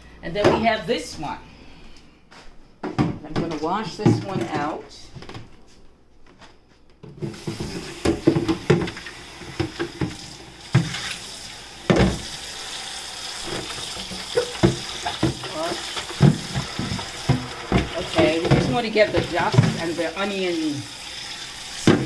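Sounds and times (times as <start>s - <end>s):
plastic tray knocking in sink: 7.2s - 10.2s, 11.9s - 12.3s, 13.5s - 20.0s
tap water running into sink: 7.2s - 22.0s.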